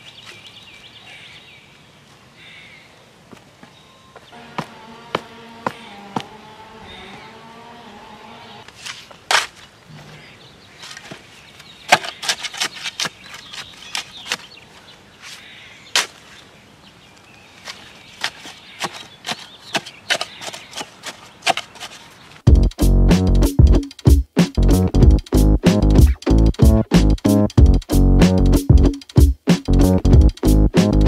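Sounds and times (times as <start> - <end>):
shovel chopping into clay soil: 8.8 - 9.6, 11.9 - 14.5, 18.2 - 22.0.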